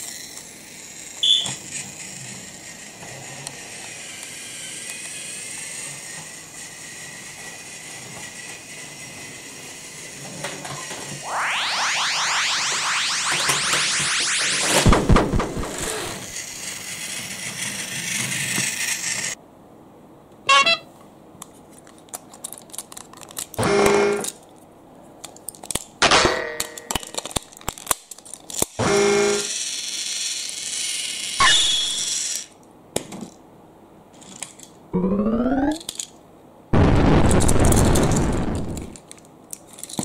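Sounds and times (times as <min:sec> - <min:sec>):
toy train horn toots: 0:20.5 - 0:20.9.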